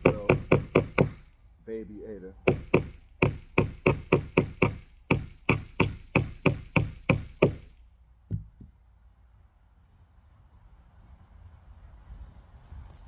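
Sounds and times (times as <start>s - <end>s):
hammer striking nails: 0.0s - 1.3s, 2.4s - 8.7s.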